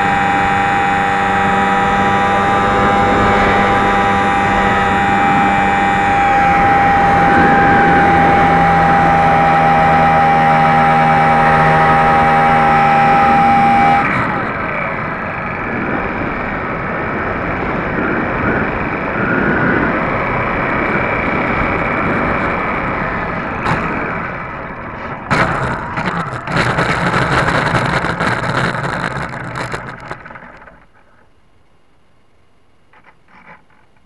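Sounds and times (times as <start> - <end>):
plane crashing and skidding: 0.0 - 14.5, 21.4 - 29.9
electric motor and propeller: 0.0 - 31.3, 32.9 - 34.0
wind rushing: 1.0 - 14.3.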